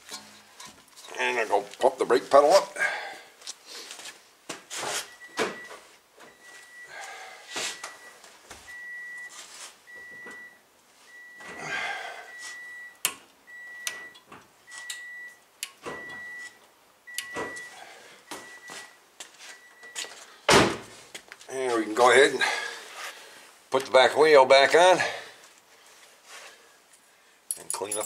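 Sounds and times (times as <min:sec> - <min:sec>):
car warning chime beeping: 0:05.1 - 0:07.0, 0:07.7 - 0:11.6, 0:12.2 - 0:20.2.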